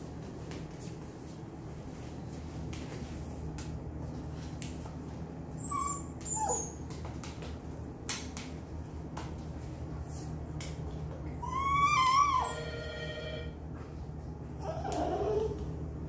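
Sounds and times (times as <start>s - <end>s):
steady low hum: 0.0s - 11.8s, 12.4s - 16.0s
small dog whimpering: 5.6s - 6.8s, 11.4s - 12.6s, 14.6s - 15.7s.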